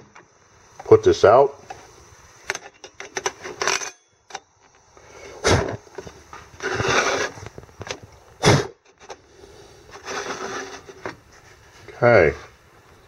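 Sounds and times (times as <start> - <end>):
metal clinks and knocks: 2.5 - 4.5
brief scraping: 9.9 - 11.9.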